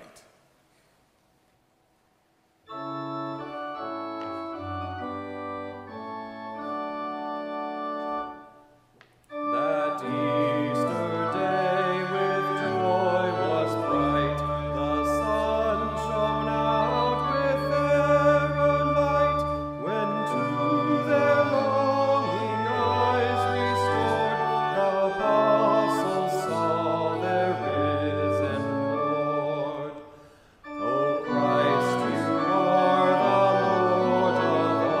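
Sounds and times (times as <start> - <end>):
church organ playing chords: 2.6 - 35.0
cantor singing: 9.3 - 35.0.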